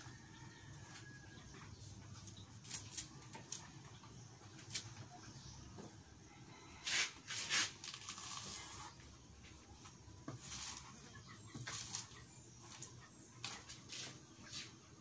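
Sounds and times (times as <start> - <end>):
knife slicing banana blossom: 6.8 - 9.0.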